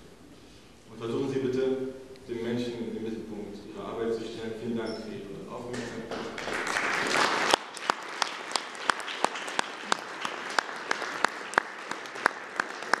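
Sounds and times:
audience applauding: 0:05.7 - 0:13.0
close sharp hand claps: 0:05.7 - 0:13.0.

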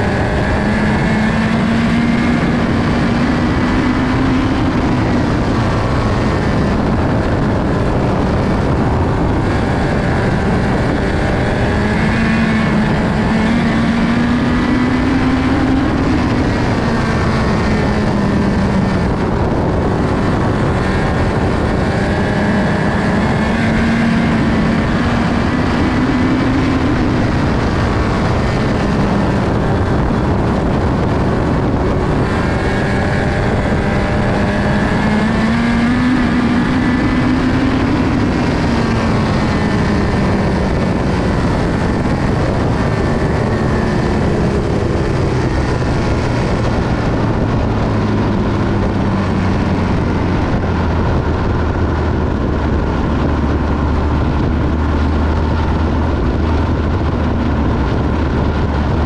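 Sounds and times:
race car engine running hard: 0:00.0 - 0:59.0.

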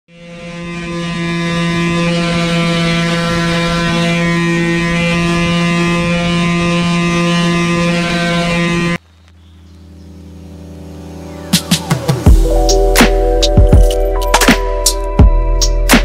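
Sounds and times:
palm sander buzzing: 0:00.1 - 0:09.0.

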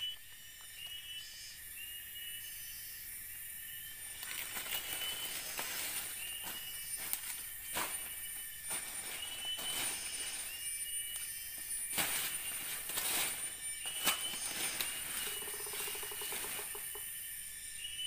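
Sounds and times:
high insect whine: 0:00.0 - 0:18.0
pulsed buzzing trill: 0:01.3 - 0:18.0
leaves being raked rustling: 0:04.0 - 0:17.0.

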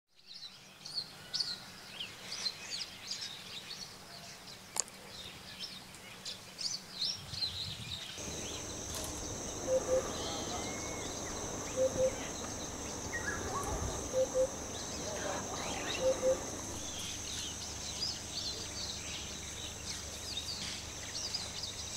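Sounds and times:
small birds chirping: 0:02.5 - 0:21.9
low two-note call: 0:08.2 - 0:17.5
high insect buzz: 0:08.2 - 0:21.9.

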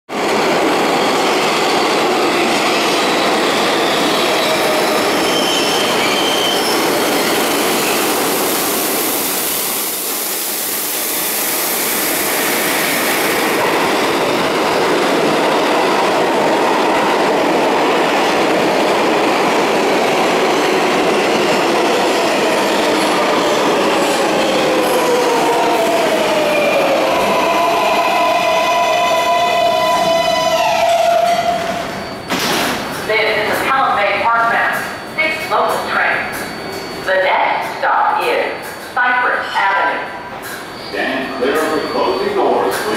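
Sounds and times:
subway train rail and wheel noise: 0:00.1 - 0:42.9.

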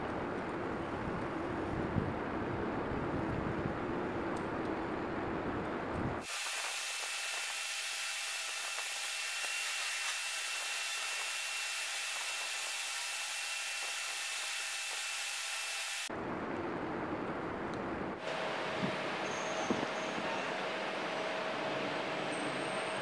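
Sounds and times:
steady hiss: 0:06.2 - 0:15.2
thin high whine: 0:18.2 - 0:23.0.

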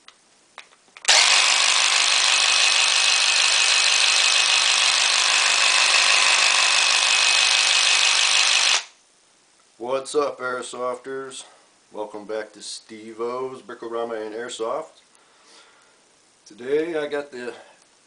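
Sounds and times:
electric motor spinning: 0:01.1 - 0:08.9.

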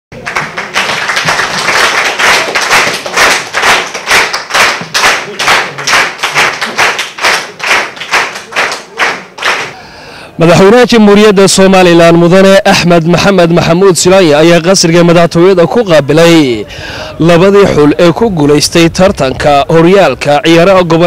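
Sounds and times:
group clapping in unison: 0:00.2 - 0:09.8.

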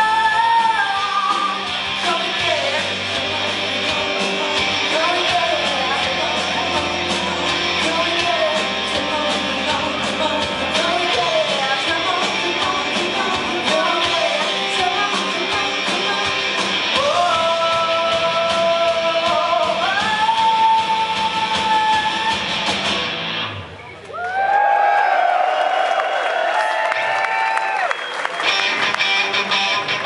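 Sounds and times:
woman singing lead: 0:00.0 - 0:22.6
rock band playing: 0:00.0 - 0:23.9, 0:28.3 - 0:30.0.

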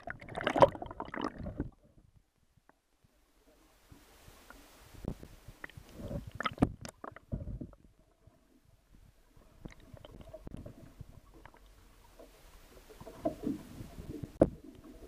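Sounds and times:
water sloshing against camera: 0:00.0 - 0:02.1, 0:03.5 - 0:15.0
faint steady hum: 0:00.1 - 0:15.0
muffled thumps and clicks: 0:05.0 - 0:07.9, 0:13.0 - 0:14.9.

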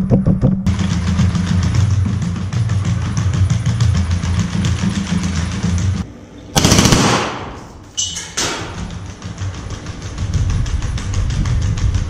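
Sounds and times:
rapid automatic gunfire: 0:06.6 - 0:07.7.

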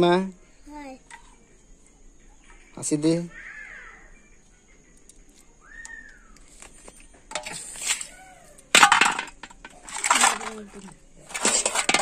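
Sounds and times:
steel dishes clattering: 0:07.3 - 0:08.1, 0:08.7 - 0:12.0.

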